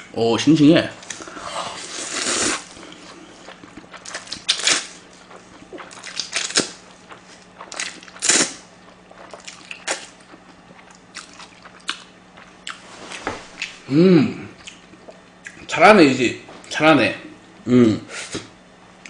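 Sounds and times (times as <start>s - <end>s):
slurping noodles: 1.2s - 2.7s.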